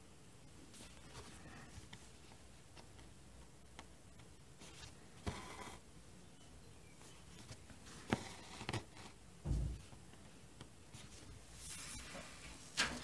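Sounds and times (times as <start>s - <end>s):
dull thump: 9.4s - 9.9s.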